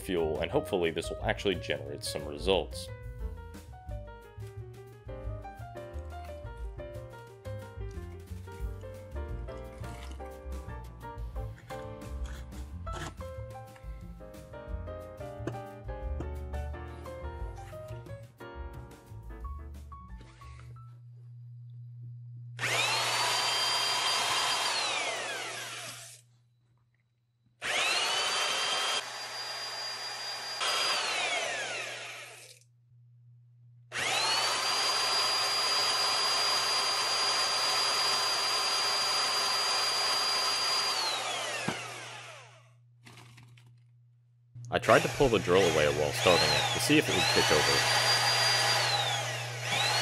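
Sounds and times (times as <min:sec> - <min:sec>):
electric drill whining: 0:22.6 - 0:26.3, 0:27.6 - 0:32.6, 0:33.9 - 0:42.7, 0:44.8 - 0:50.0.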